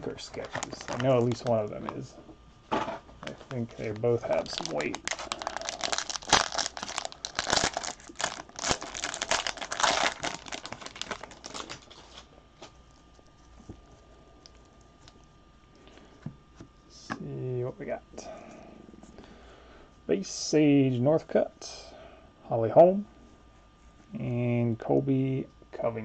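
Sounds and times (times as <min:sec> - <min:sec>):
foil wrapper tearing and crinkling: 0:00.3 - 0:02.0, 0:03.5 - 0:12.3.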